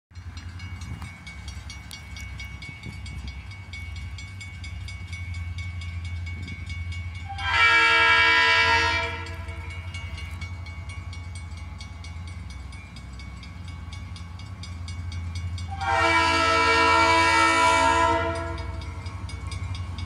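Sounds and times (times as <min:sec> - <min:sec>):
train horn blast: 0:07.2 - 0:09.7, 0:15.7 - 0:18.8.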